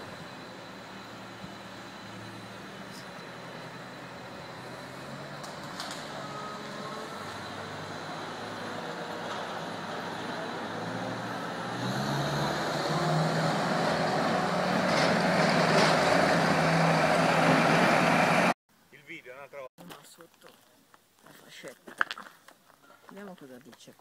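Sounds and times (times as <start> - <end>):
tracked loader diesel engine: 0.0 - 18.6.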